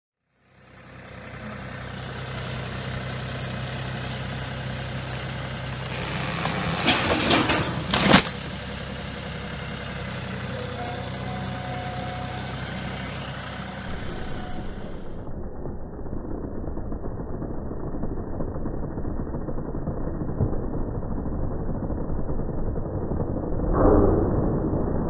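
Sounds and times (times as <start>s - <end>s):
tractor diesel engine running: 0.3s - 23.5s
tree crashing down: 5.8s - 9.6s
tree trunk cracking and splintering: 5.8s - 9.6s.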